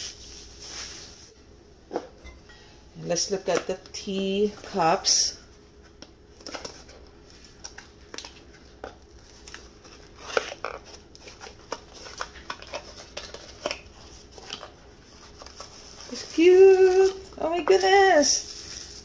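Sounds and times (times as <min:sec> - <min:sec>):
packaging rustling: 0:06.3 - 0:19.0.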